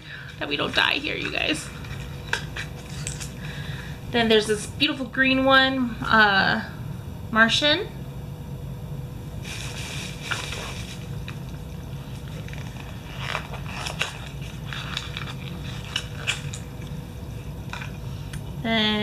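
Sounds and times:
low steady hum: 0.0s - 19.0s
packaging rustling and clicking: 0.3s - 3.4s, 12.1s - 17.0s.

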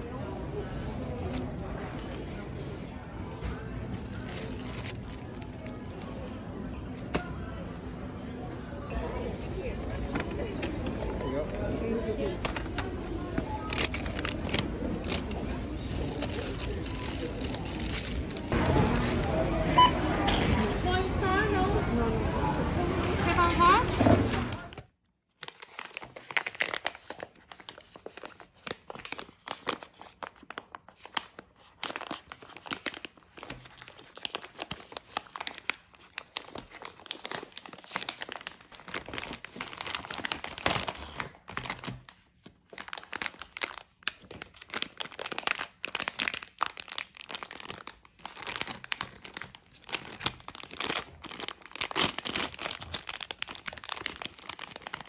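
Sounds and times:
plastic packaging crinkling: 3.9s - 7.4s, 12.4s - 19.2s, 25.3s - 55.0s.

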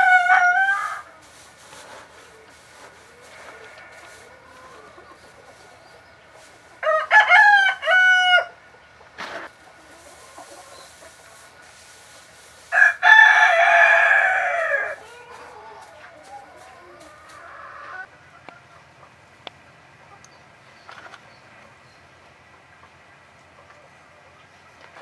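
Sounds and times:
rooster crowing: 0.0s - 1.2s, 6.8s - 8.6s, 12.7s - 18.1s.

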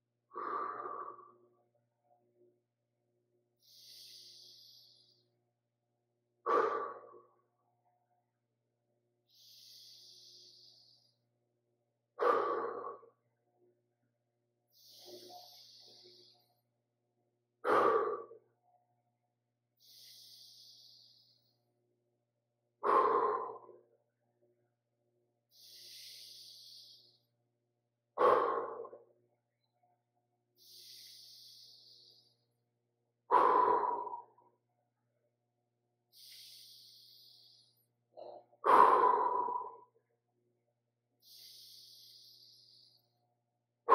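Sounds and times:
man breathing rhythmically: 0.0s - 1.7s, 3.4s - 7.6s, 9.1s - 13.4s, 14.6s - 18.6s, 19.7s - 24.1s, 25.4s - 29.2s, 30.4s - 34.7s, 36.0s - 40.0s, 41.2s - 43.9s
faint hissing breath: 3.6s - 5.4s, 9.2s - 11.3s, 14.7s - 16.7s, 19.8s - 21.6s, 25.5s - 27.4s, 30.6s - 32.5s, 36.1s - 38.0s, 41.2s - 43.2s.

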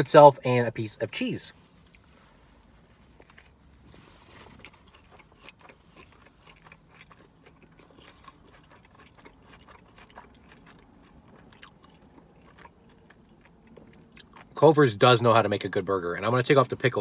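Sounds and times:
person chewing food: 1.8s - 14.6s.

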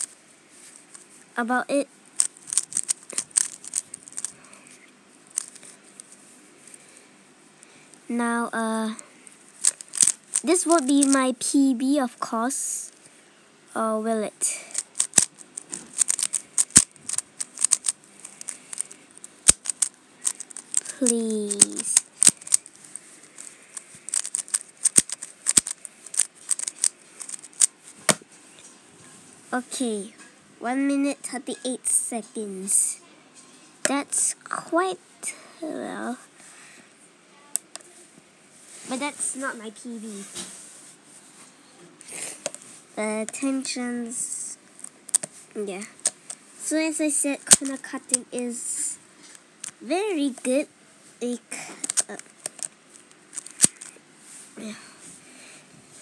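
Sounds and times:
puzzle cube plastic clicks: 2.2s - 4.4s, 5.3s - 6.0s, 9.6s - 11.3s, 14.4s - 28.2s, 33.8s - 34.9s, 37.6s - 37.9s, 42.4s - 42.6s, 44.8s - 50.5s, 51.2s - 54.0s.

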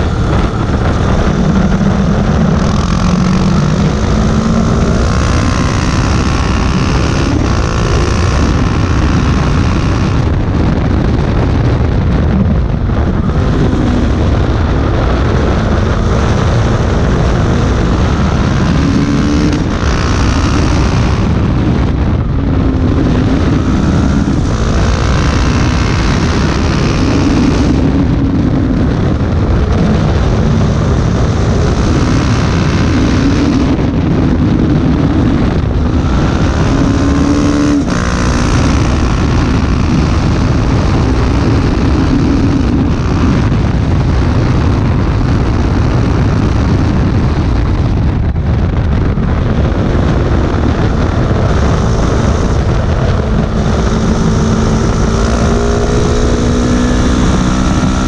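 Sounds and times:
motorcycle engine revving: 0.0s - 58.0s
wind rush: 0.0s - 58.0s.

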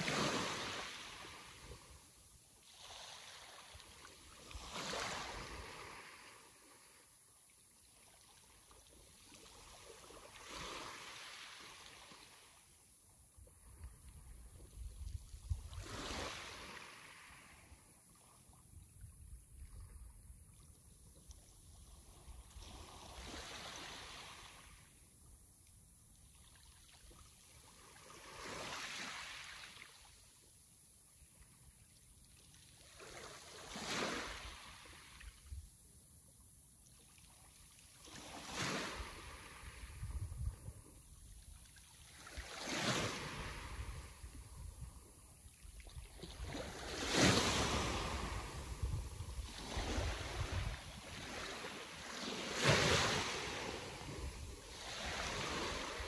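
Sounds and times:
sea waves breaking: 46.5s - 56.0s.

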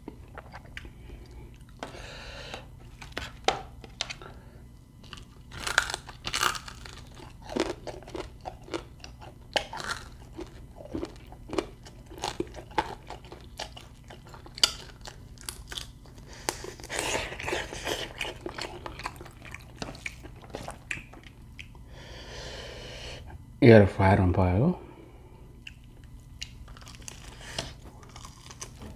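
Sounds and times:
chewing and crunching meat: 0.0s - 1.9s, 4.9s - 21.9s, 25.6s - 28.9s.

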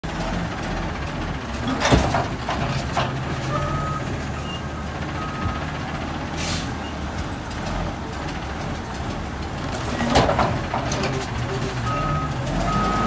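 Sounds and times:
diesel engine running: 0.0s - 13.0s
reversing beeps: 3.5s - 5.7s, 11.1s - 13.0s
air brake hiss: 6.4s - 6.8s.

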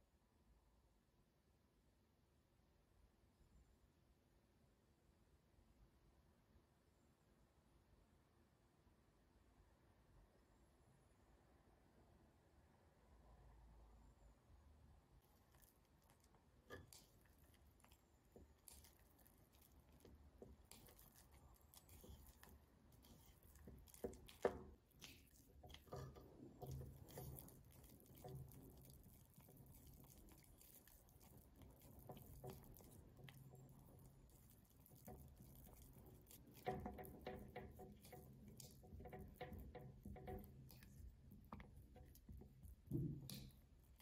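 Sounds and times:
spatula squishing wet paste: 15.1s - 44.0s.

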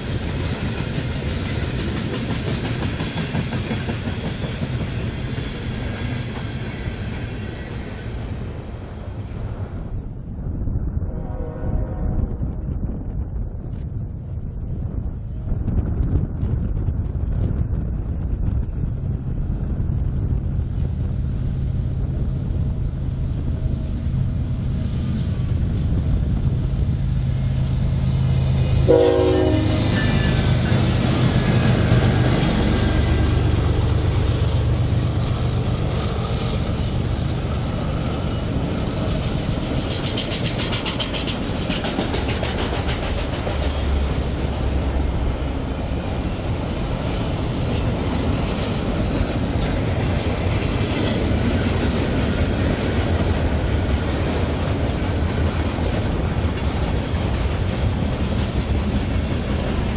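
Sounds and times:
train wheels clickety-clack: 0.0s - 8.4s, 23.6s - 59.9s
locomotive drone: 0.0s - 59.9s
train horn: 11.1s - 12.4s, 28.8s - 33.1s.

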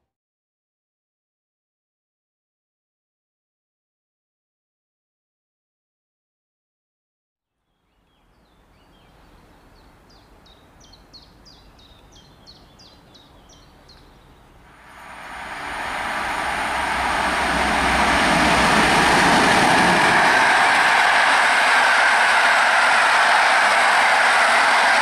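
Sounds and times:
passing train rail noise: 14.6s - 25.0s.

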